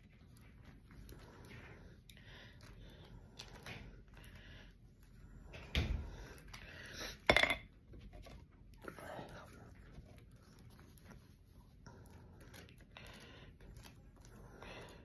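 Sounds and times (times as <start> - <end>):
quiet handling sounds: 7.8 - 15.0.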